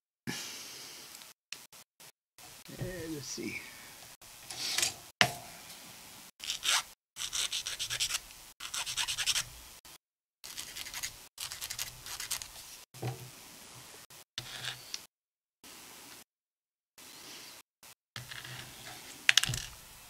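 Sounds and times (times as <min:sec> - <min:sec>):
scratchy rubbing of plastic parts: 0:06.4 - 0:09.5, 0:10.4 - 0:12.9, 0:14.4 - 0:15.0, 0:18.2 - 0:19.8.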